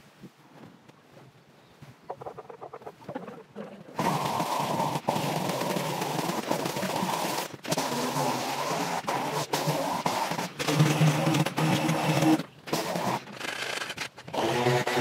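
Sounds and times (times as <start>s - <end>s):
string trimmer cutting grass: 3.9s - 15.0s.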